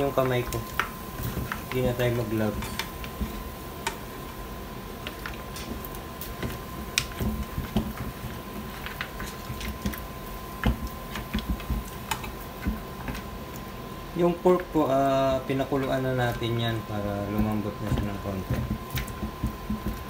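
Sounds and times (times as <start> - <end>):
meat and bone knocking against pan: 6.4 - 10.0, 10.6 - 13.3, 17.3 - 20.0.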